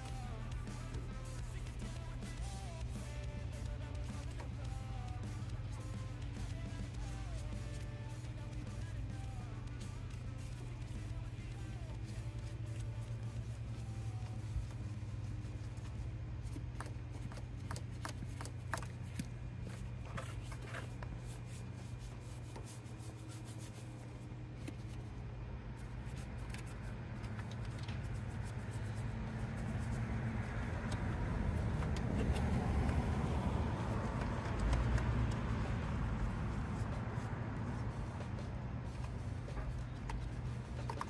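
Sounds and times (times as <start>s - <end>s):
steady low hum: 0.0s - 41.0s
scratchy scrubbing strokes: 16.8s - 24.2s.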